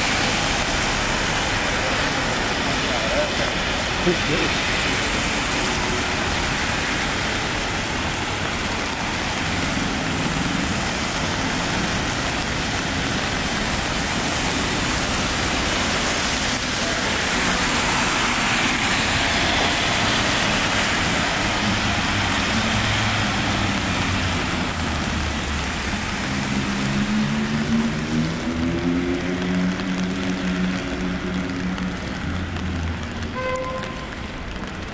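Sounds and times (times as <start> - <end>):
tyres hissing on wet road: 0.0 - 34.9.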